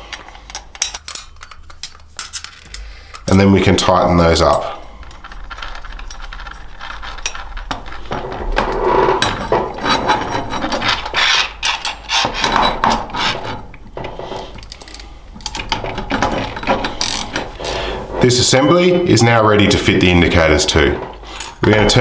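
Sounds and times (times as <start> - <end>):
metal tools scraping and clicking: 0.1 - 3.4, 4.4 - 17.8.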